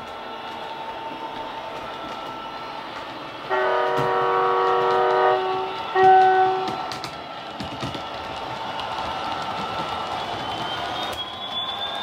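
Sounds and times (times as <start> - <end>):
model train horn blasts: 3.5 - 6.8.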